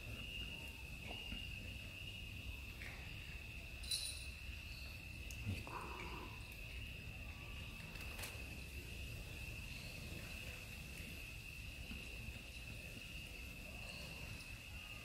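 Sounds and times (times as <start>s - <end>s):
crickets trilling: 0.0s - 15.0s
small collar bell tinkling: 3.8s - 5.1s.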